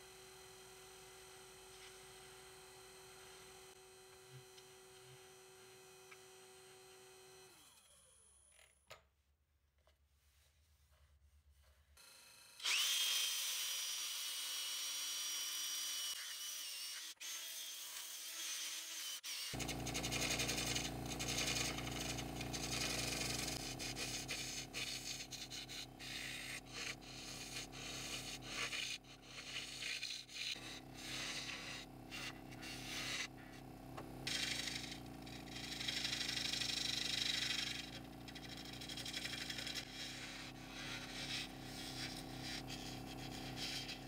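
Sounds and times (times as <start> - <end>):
hand sanding on a lathe: 19.5 - 33.6, 34.3 - 44.0
turning tool scraping wood: 19.5 - 33.6, 34.2 - 44.0
lathe motor hum: 19.6 - 28.4.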